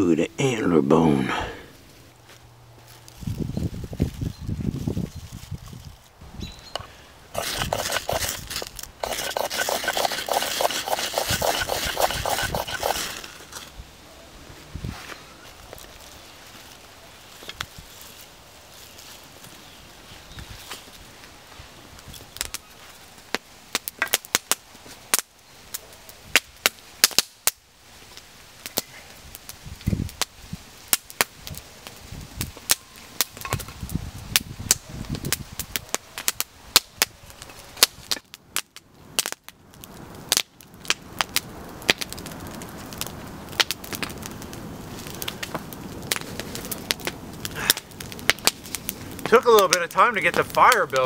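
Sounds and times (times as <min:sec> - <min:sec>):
campfire crackling: 0:00.0 - 0:51.0
sharp fire pops: 0:22.0 - 0:51.0.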